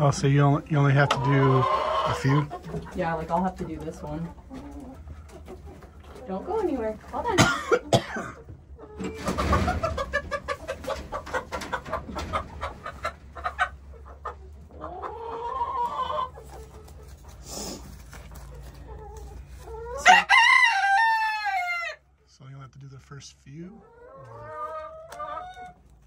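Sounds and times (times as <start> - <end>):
wing flapping and scuffling: 16.4 - 19.8
rooster crowing: 20.0 - 22.0.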